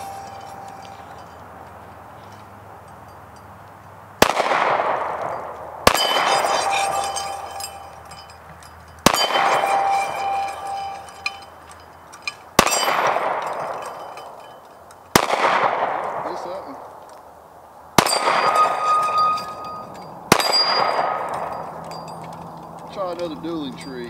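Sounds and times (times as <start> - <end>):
steel target ringing: 0.0 - 3.5, 4.3 - 15.9, 18.0 - 22.3
pistol shots with echo: 4.2 - 7.4, 9.0 - 9.9, 12.6 - 13.8, 15.1 - 17.0, 18.0 - 18.8, 20.3 - 21.6.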